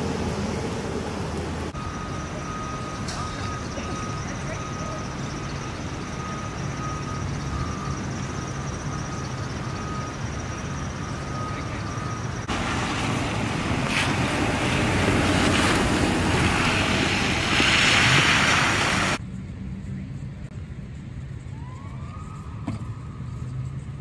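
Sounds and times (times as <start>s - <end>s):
loud rushing noise: 12.4s - 19.2s.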